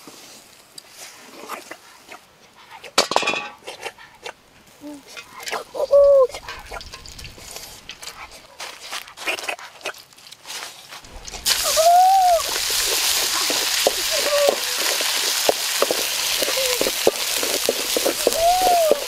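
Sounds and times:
paste sizzling in hot oil: 11.1s - 19.0s
spatula scraping a wok: 12.4s - 19.0s.

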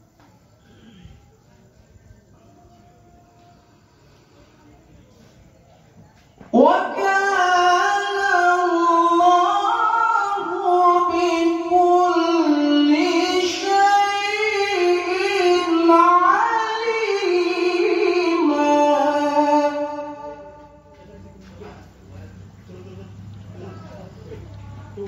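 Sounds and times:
man reciting melodically: 6.5s - 24.6s.

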